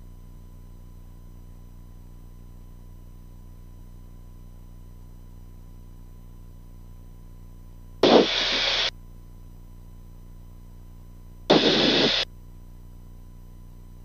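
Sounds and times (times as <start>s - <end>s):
low electrical hum: 0.0s - 14.0s
radio static bursts: 8.0s - 8.9s, 11.5s - 12.2s.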